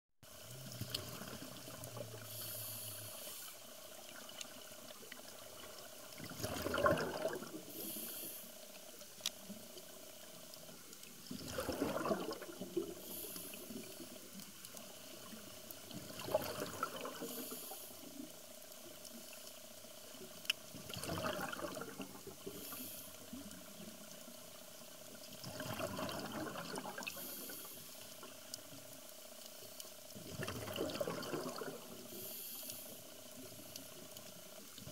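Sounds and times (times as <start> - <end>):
regulator inhale hiss: 2.2 - 4.0, 7.6 - 9.0, 12.9 - 14.2, 17.2 - 18.2, 22.4 - 23.5, 27.1 - 28.2, 32.1 - 33.4
exhaust bubbles rushing: 6.2 - 7.6, 11.3 - 12.8, 30.4 - 31.8.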